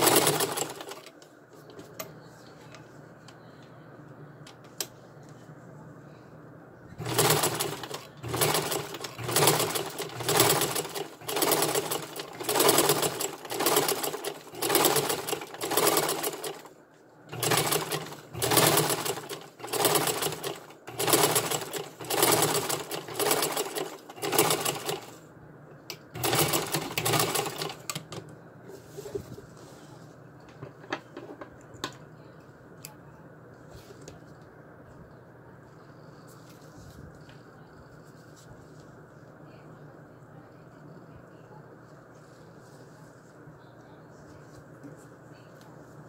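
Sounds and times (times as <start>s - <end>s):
sewing machine stitching: 0.0s - 1.1s, 7.0s - 16.7s, 17.3s - 25.2s, 26.2s - 28.1s.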